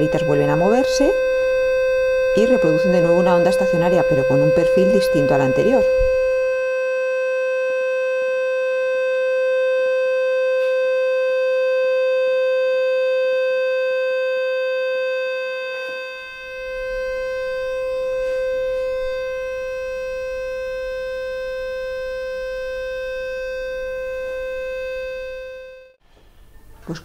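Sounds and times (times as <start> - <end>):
steady pure tone from loudspeaker: 0.0 - 6.6, 15.6 - 25.6.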